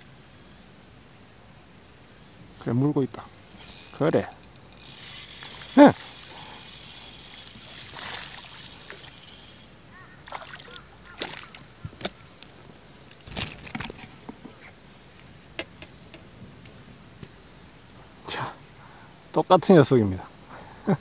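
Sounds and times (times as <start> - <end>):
fish splashing at water surface: 5.0 - 9.5, 10.2 - 11.7
water drips: 10.2 - 11.7.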